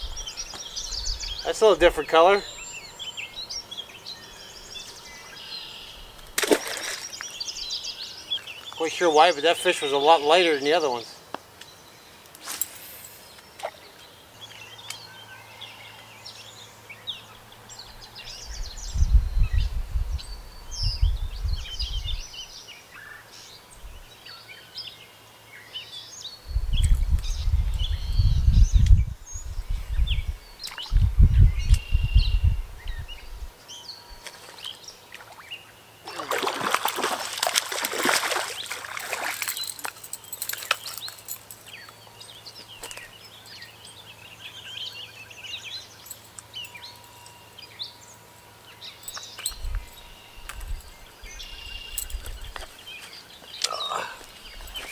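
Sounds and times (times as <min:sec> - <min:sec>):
songbirds calling: 0:00.0 - 0:54.9
fish splashing in water: 0:06.4 - 0:07.2, 0:36.1 - 0:40.8
deep rumble on microphone: 0:18.4 - 0:22.3, 0:26.5 - 0:33.5.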